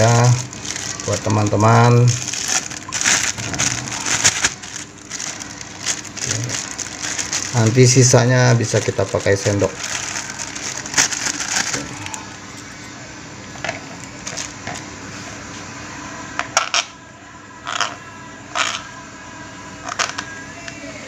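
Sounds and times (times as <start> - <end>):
plastic bag crinkling: 0.0 - 12.3, 14.0 - 14.9.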